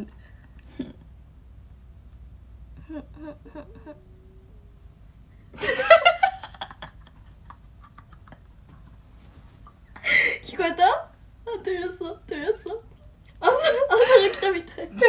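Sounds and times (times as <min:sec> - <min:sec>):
soft voice sounds: 0:02.8 - 0:04.7
women laughing: 0:05.6 - 0:08.6, 0:13.4 - 0:15.0.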